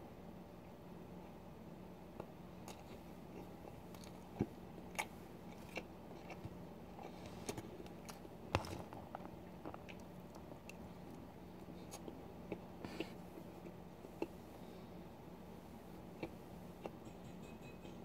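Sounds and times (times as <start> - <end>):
person chewing: 2.2 - 14.4, 16.2 - 17.0.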